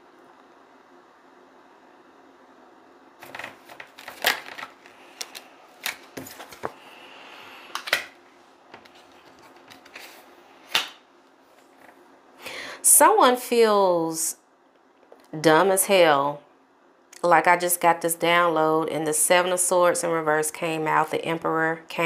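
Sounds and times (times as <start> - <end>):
cards shuffled and snapping: 3.2 - 6.8, 7.7 - 8.1, 8.8 - 11.0.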